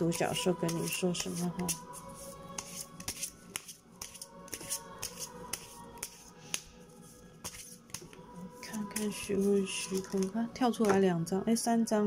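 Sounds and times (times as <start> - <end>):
soft background music: 0.0 - 12.0
cards being shuffled: 0.4 - 6.7.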